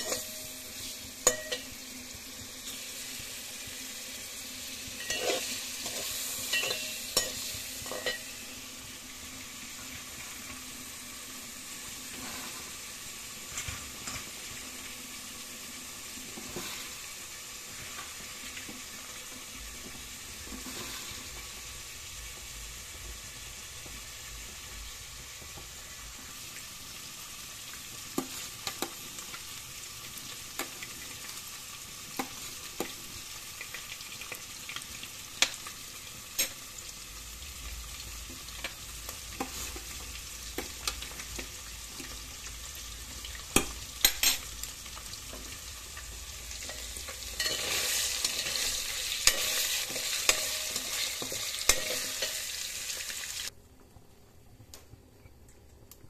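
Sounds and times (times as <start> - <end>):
food sizzling in hot oil: 0.0 - 53.6
water boiling with pops: 0.0 - 56.0.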